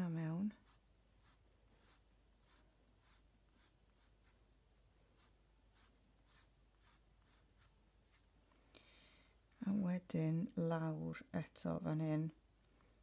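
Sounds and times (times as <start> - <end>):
pencil sketching on paper: 0.5 - 4.4, 5.1 - 7.8.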